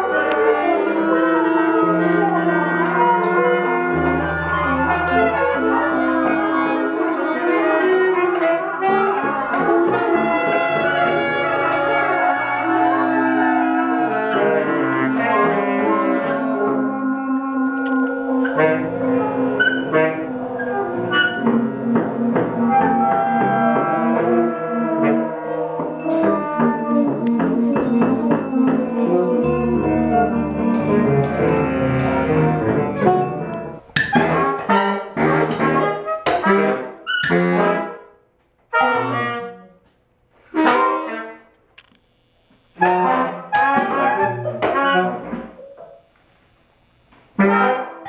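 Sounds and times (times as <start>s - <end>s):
free jazz ensemble: 0.0s - 38.1s
sharp percussive hits: 25.9s - 34.2s.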